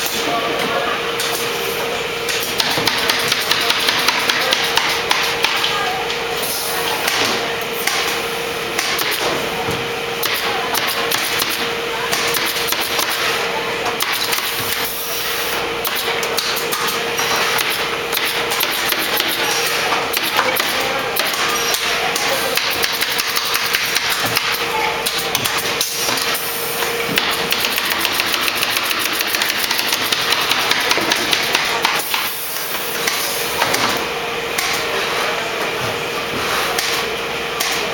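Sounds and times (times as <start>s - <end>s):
steady machine hum: 0.0s - 37.9s
pneumatic staple guns firing: 10.2s - 13.3s, 15.8s - 21.8s, 27.1s - 34.0s.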